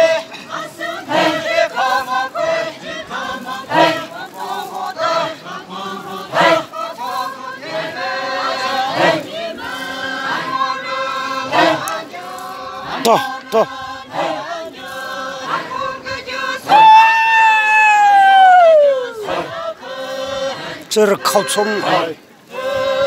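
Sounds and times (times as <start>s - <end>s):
group chanting in unison: 0.0s - 23.0s.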